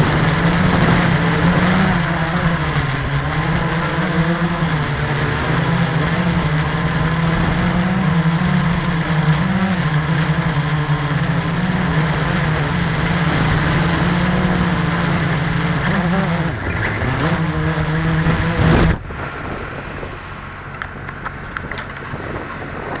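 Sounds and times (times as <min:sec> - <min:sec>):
drone motors buzzing: 0:00.0 - 0:23.0.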